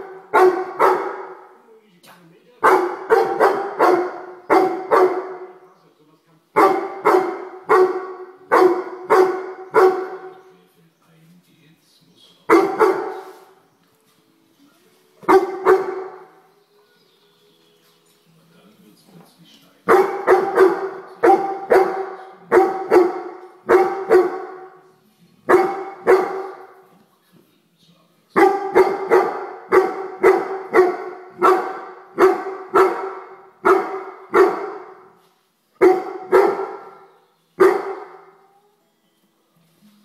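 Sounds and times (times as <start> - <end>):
dog barking: 0.0 - 1.6, 2.6 - 5.6, 6.6 - 10.4, 12.5 - 13.6, 15.2 - 16.4, 19.9 - 24.8, 25.4 - 26.9, 28.4 - 35.2, 35.8 - 38.6.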